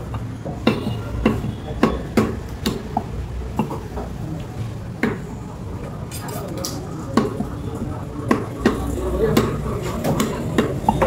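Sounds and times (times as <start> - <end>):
cleaver chopping meat on wood: 0.5 - 3.8, 7.1 - 7.5, 8.2 - 11.0.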